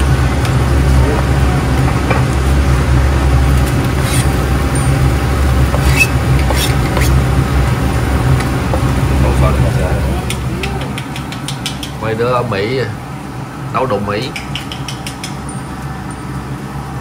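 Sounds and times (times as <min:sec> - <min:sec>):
stove hum and hiss: 0:00.0 - 0:17.0
knife clicks and scrapes: 0:03.7 - 0:04.4, 0:05.7 - 0:07.2.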